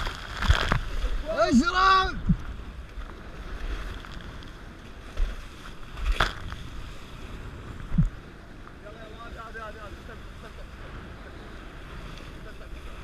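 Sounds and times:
water rushing past hulls: 0:00.0 - 0:13.0
wave slapping boat: 0:00.0 - 0:13.0
wind buffeting microphone: 0:00.0 - 0:13.0.

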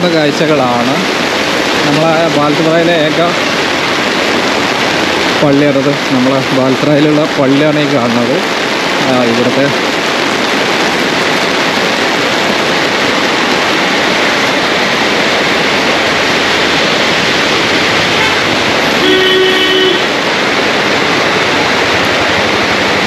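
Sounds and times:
heavy rain on umbrella: 0:00.0 - 0:23.0
vehicle horn: 0:18.0 - 0:20.1.

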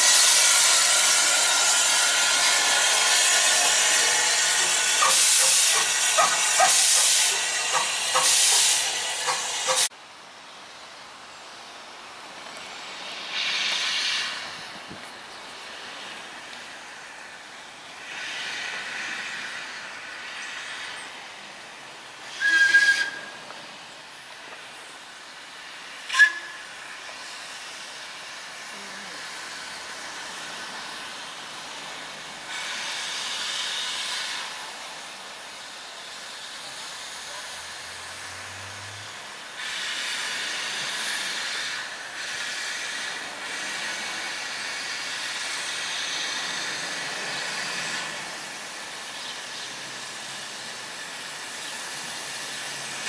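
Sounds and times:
steam whistle blasts: 0:00.0 - 0:09.9, 0:22.3 - 0:23.5, 0:26.0 - 0:27.0
steam locomotive hissing: 0:00.0 - 0:10.0, 0:12.2 - 0:53.0.

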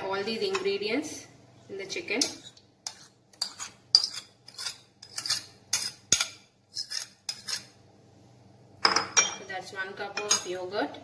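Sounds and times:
spoon scraping and clinking bowls: 0:02.2 - 0:07.8.

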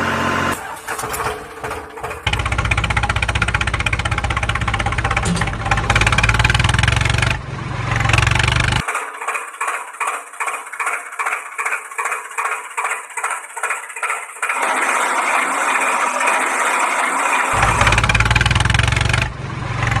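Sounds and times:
tractor engine chugging: 0:00.0 - 0:20.0
deep rumble: 0:02.3 - 0:08.8, 0:17.6 - 0:20.0.

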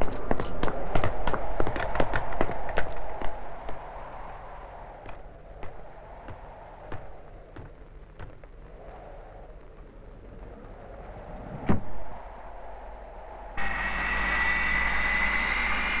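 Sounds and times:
jet engines whining: 0:00.0 - 0:16.0.

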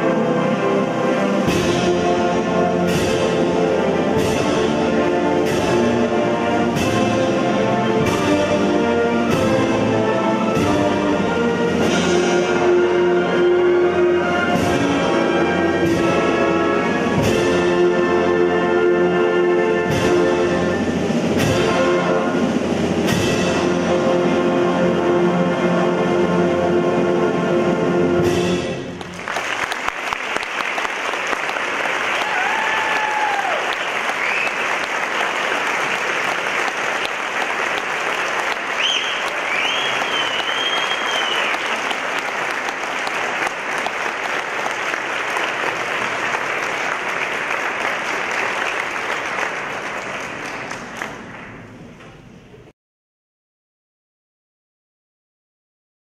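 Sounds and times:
audience applauding: 0:29.0 - 0:51.8
whistles from audience: 0:32.4 - 0:35.4, 0:38.6 - 0:42.0.

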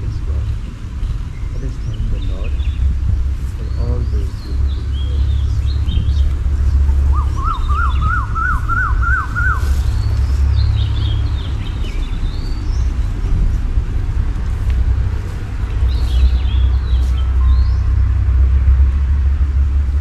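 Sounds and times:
birds chirping: 0:00.0 - 0:19.7
wind rumble on microphone: 0:00.0 - 0:20.0.

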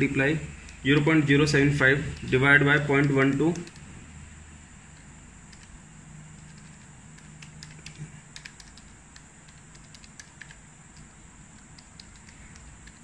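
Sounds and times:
faint background hum: 0:00.0 - 0:13.0
calculator keys clicking: 0:02.1 - 0:03.9, 0:05.0 - 0:05.8, 0:06.4 - 0:13.0.

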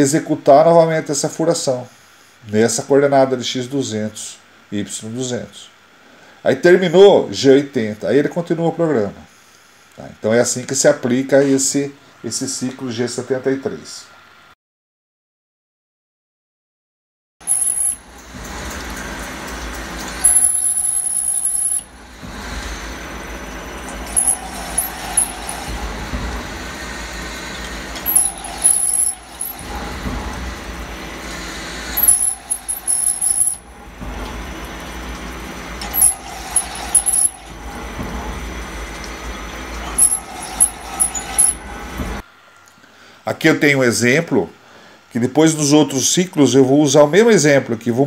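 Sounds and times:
high drill squeal: 0:17.4 - 0:18.1, 0:20.2 - 0:23.0, 0:24.0 - 0:25.9, 0:26.9 - 0:29.9, 0:31.2 - 0:33.7, 0:35.8 - 0:37.6, 0:39.9 - 0:41.7
machine spindle and coolant noise: 0:17.4 - 0:42.4.

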